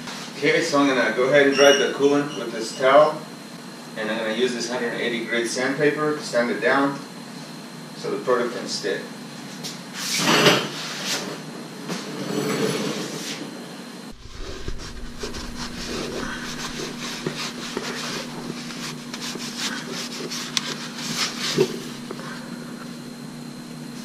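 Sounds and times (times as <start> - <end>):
faint steady hum: 13.3 - 24.0
towel rubbing on metal pipe: 14.2 - 22.1.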